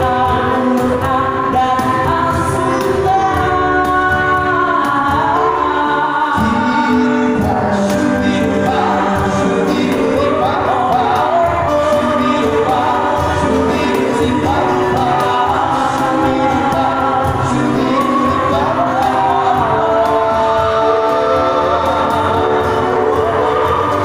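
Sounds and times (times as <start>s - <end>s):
male vocal group singing in harmony: 0.0s - 24.0s.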